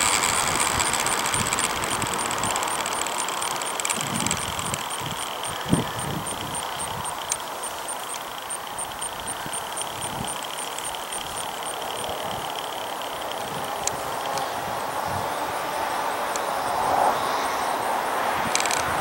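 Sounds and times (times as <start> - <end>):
wind noise: 0.0 - 7.4, 8.8 - 10.6, 13.2 - 19.0
rapid high ticking: 0.0 - 15.1
model airplane motor whine: 0.0 - 19.0.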